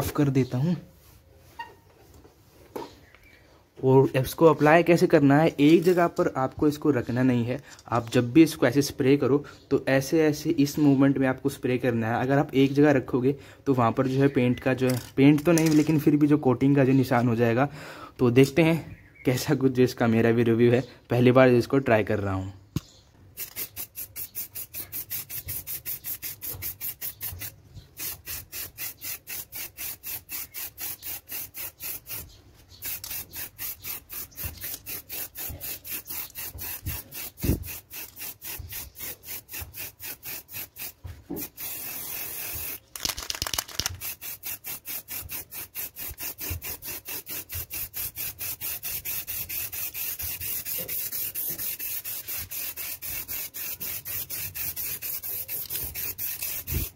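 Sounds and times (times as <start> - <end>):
aerosol spray hissing: 23.4 - 56.9.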